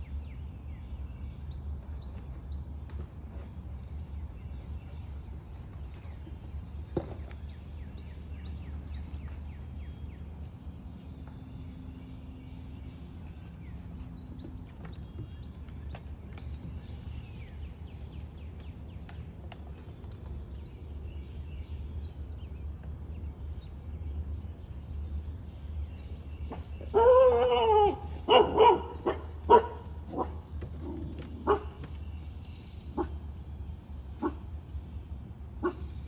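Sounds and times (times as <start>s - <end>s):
dog barking: 27.0s - 30.4s, 31.4s - 31.7s, 34.2s - 34.4s, 35.6s - 35.9s.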